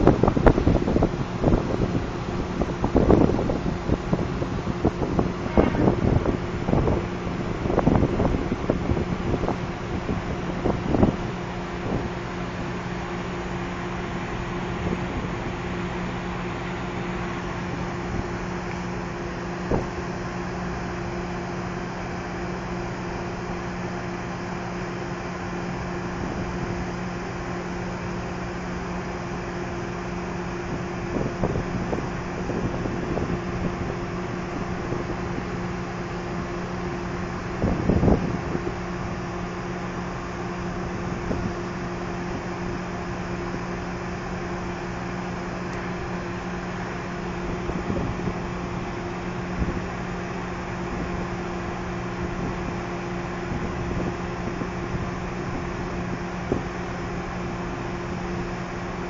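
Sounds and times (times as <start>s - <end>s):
wind rumbling on microphone: 0.0s - 20.3s, 29.9s - 44.3s, 45.6s - 57.0s
ship machinery humming: 0.0s - 59.0s.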